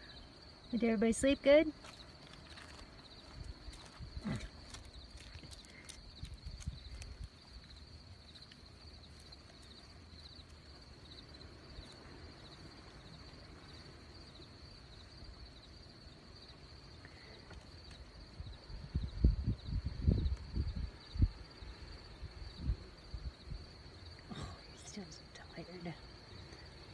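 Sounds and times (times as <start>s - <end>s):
insects trilling and chirping: 0.0s - 26.9s.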